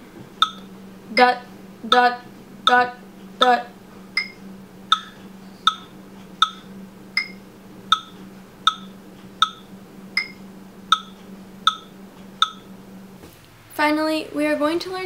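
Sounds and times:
low steady hum: 0:00.0 - 0:15.0
metronome clicking: 0:00.4 - 0:01.3, 0:01.9 - 0:03.6, 0:04.2 - 0:12.7.

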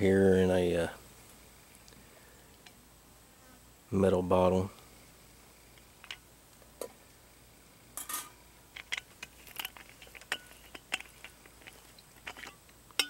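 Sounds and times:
metal lid clinking on grill rack: 0:08.0 - 0:08.3.

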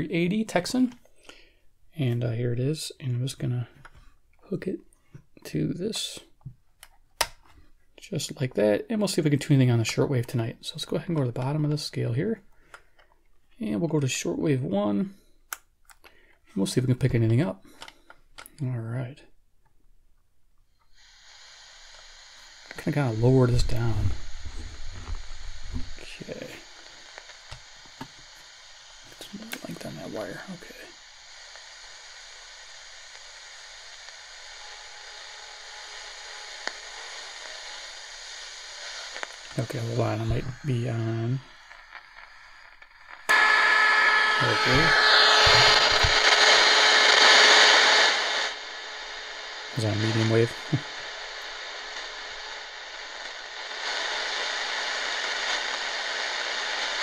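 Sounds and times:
radio static hissing: 0:00.0 - 0:04.8, 0:05.5 - 0:06.5, 0:08.0 - 0:12.6, 0:20.8 - 0:57.0.

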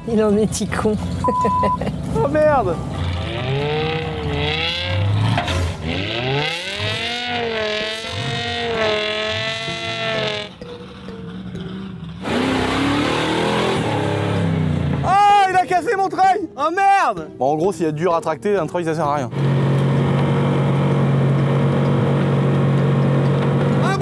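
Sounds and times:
car engine revving hard: 0:02.9 - 0:10.6, 0:11.6 - 0:15.0, 0:19.3 - 0:24.0.

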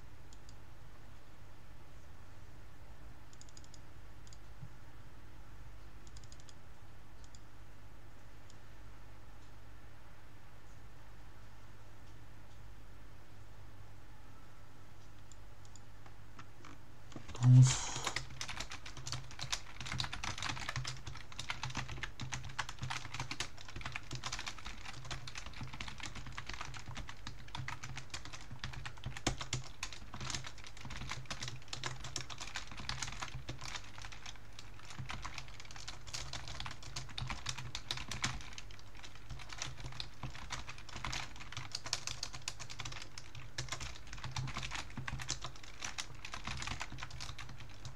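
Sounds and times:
fast typing on keyboard: 0:17.5 - 0:47.9.

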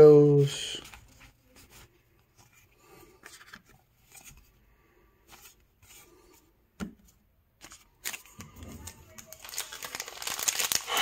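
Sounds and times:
trading cards rustling: 0:07.6 - 0:11.0.

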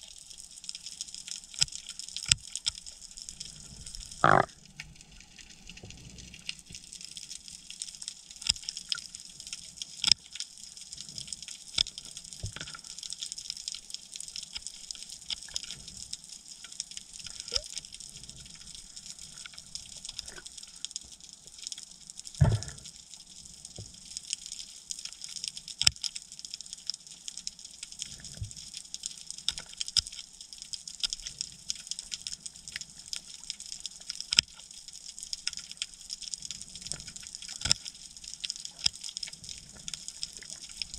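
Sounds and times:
sharp clicks and crackles: 0:00.0 - 0:40.9
underwater hiss: 0:03.4 - 0:04.6, 0:22.4 - 0:23.0.

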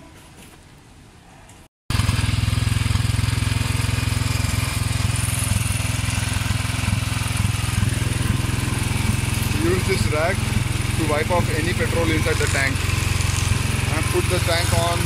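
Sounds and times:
motorcycle engine idling: 0:01.9 - 0:15.0.

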